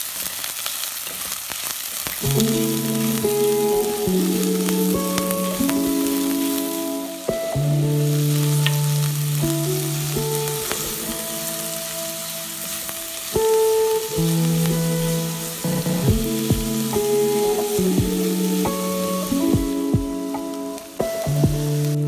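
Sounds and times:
onions sizzling in hot oil: 0:00.0 - 0:22.0
background music with held notes: 0:02.2 - 0:22.0.

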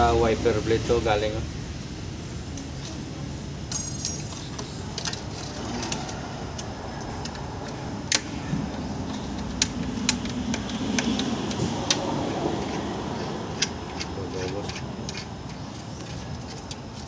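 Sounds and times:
metallic clicks and scrapes: 0:03.7 - 0:17.0.

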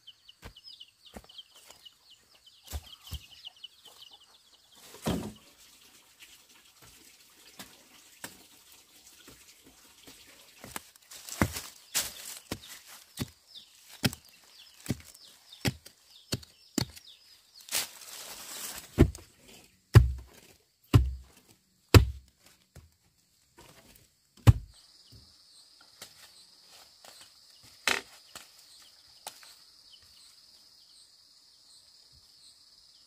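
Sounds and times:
soil scattering: 0:09.2 - 0:17.0, 0:17.6 - 0:22.9
digging tool chopping soil: 0:13.2 - 0:13.4, 0:14.0 - 0:17.0, 0:18.9 - 0:19.2, 0:19.9 - 0:22.3, 0:24.4 - 0:24.7.

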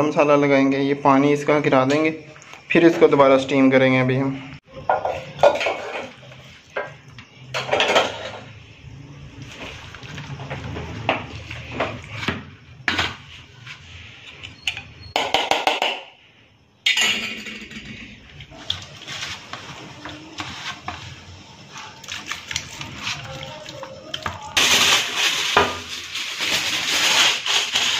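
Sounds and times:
wet smearing: 0:18.5 - 0:24.6.

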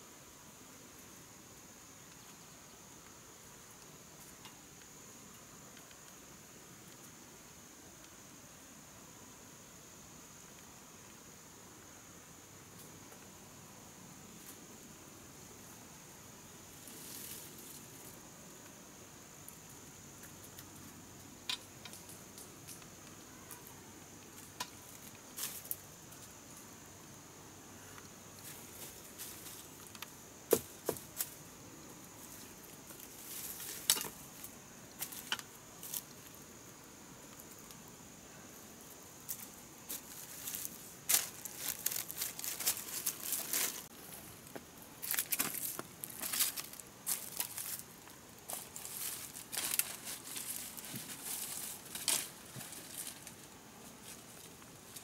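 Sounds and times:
insects buzzing: 0:00.0 - 0:55.0
dry leaves and twigs snapping: 0:32.2 - 0:36.4, 0:39.3 - 0:55.0.

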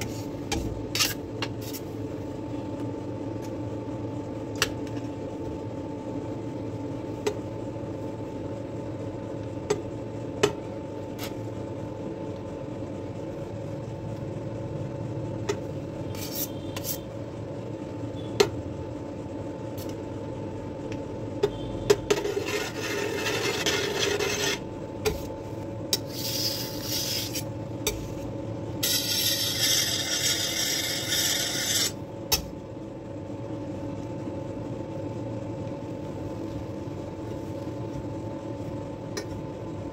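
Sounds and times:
steady background hum: 0:00.0 - 0:39.9
palette knife scraping cream: 0:16.1 - 0:17.1, 0:22.1 - 0:24.6, 0:26.0 - 0:27.5, 0:28.8 - 0:32.0.

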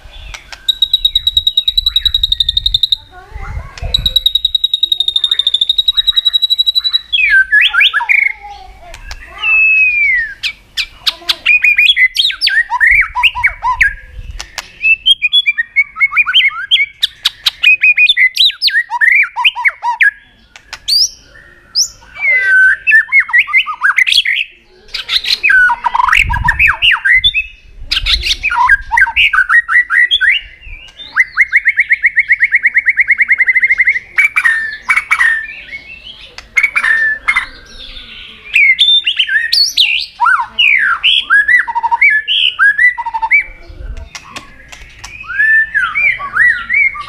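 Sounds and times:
bird singing whistled phrases: 0:00.1 - 0:03.1, 0:03.8 - 0:47.0
sharp clicking bird notes: 0:00.2 - 0:03.0, 0:03.7 - 0:07.9, 0:08.8 - 0:09.4, 0:14.3 - 0:14.9, 0:20.5 - 0:21.2, 0:36.2 - 0:37.7, 0:41.9 - 0:46.0.

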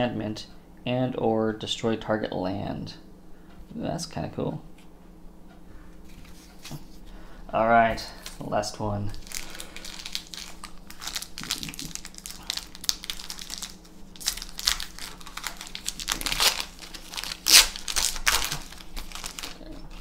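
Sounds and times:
foil wrapper crinkling and tearing: 0:09.1 - 0:20.0.

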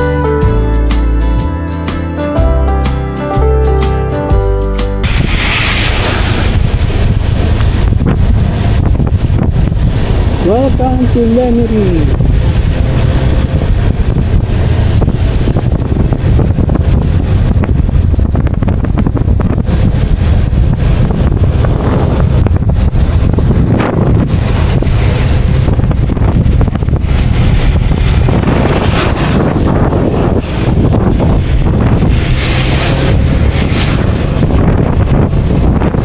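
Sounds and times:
tyres hissing on wet road: 0:05.0 - 0:15.9, 0:24.3 - 0:34.6
wind buffeting microphone: 0:05.0 - 0:36.0.

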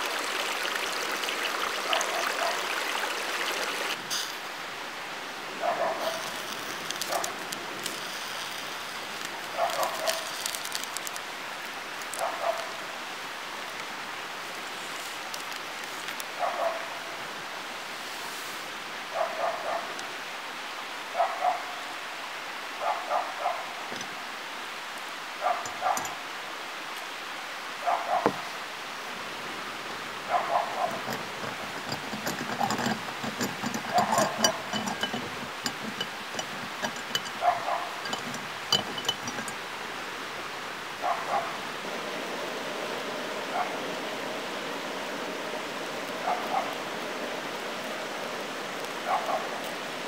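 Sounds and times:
steady hiss: 0:00.0 - 0:50.0
dog barking: 0:01.9 - 0:02.7, 0:05.6 - 0:06.3, 0:07.1 - 0:07.4, 0:09.6 - 0:10.3, 0:12.2 - 0:12.8, 0:16.4 - 0:17.0, 0:19.1 - 0:20.0, 0:21.1 - 0:21.8, 0:22.8 - 0:23.8, 0:25.4 - 0:26.2, 0:27.8 - 0:28.5, 0:30.3 - 0:31.0, 0:37.4 - 0:38.0, 0:41.0 - 0:41.6, 0:43.5 - 0:43.8, 0:46.2 - 0:46.8, 0:49.0 - 0:49.6.

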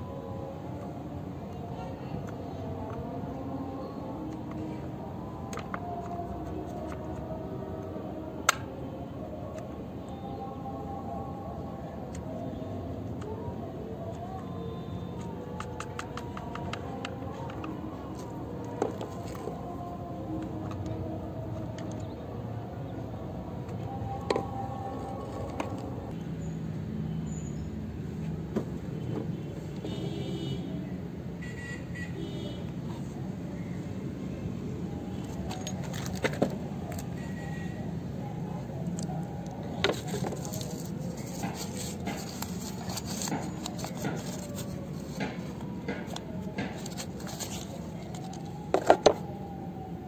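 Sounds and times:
paper rustling: 0:39.8 - 0:49.2.

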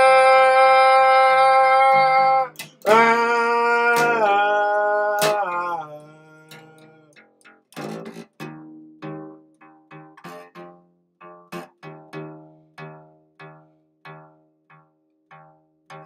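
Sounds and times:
man singing wordless notes: 0:00.0 - 0:07.2
fingerpicked acoustic bass guitar: 0:00.0 - 0:16.0.

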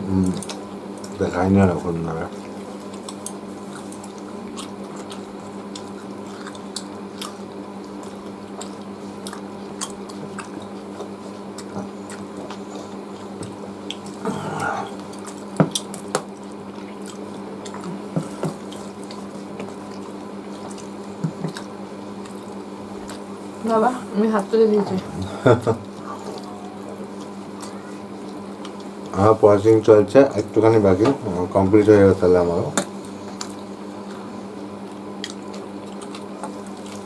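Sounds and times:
steady low hum: 0:00.0 - 0:37.0
wet chewing and lip-smacking: 0:02.4 - 0:14.2, 0:14.8 - 0:23.5, 0:25.8 - 0:29.1, 0:32.8 - 0:37.0.

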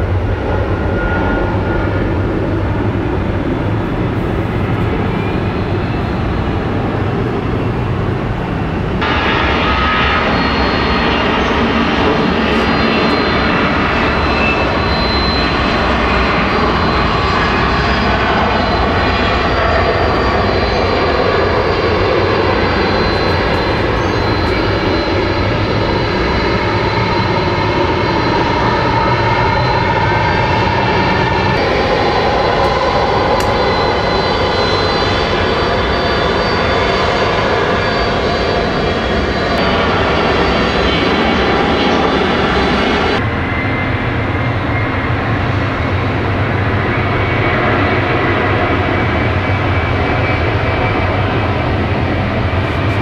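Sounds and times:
jet engines roaring: 0:00.0 - 0:53.0.

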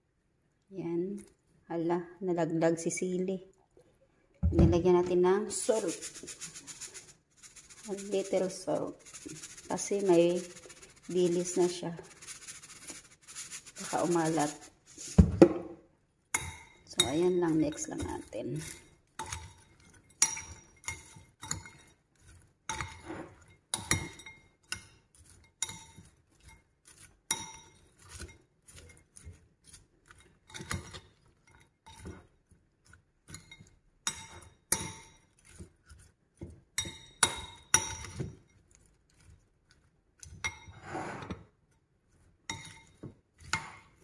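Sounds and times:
utensils clinking on ceramic bowl: 0:16.4 - 0:40.8, 0:42.2 - 0:44.0.

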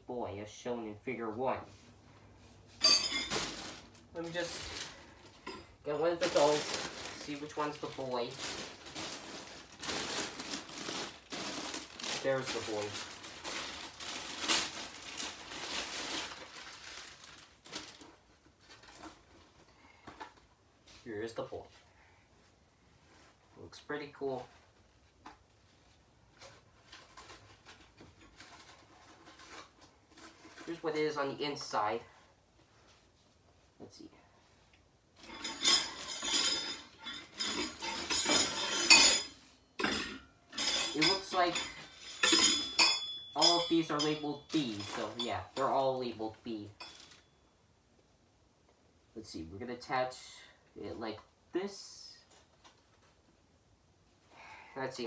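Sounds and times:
cloth rustling: 0:01.6 - 0:19.6
metal poles clinking and rattling: 0:02.7 - 0:15.3, 0:35.2 - 0:46.1, 0:46.7 - 0:47.3
plastic bag crinkling: 0:03.0 - 0:19.3.

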